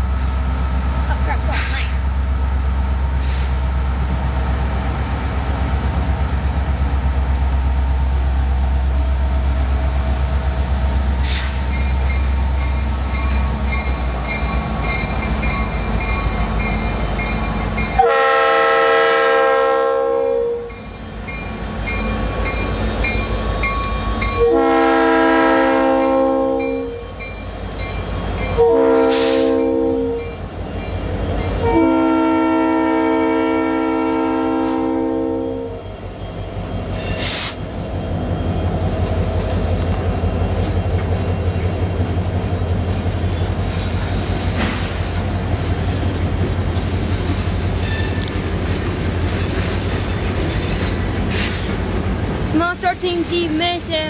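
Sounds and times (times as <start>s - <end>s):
diesel locomotive engine rumble: 0.0s - 54.0s
train air horn blasts: 18.0s - 20.7s, 24.4s - 27.0s, 28.6s - 30.3s, 31.6s - 35.8s.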